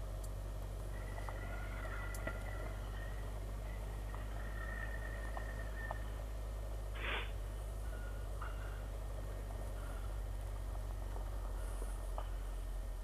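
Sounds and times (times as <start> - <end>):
muffled motorcycle hum: 0.0 - 13.0
short hiss: 7.0 - 7.4.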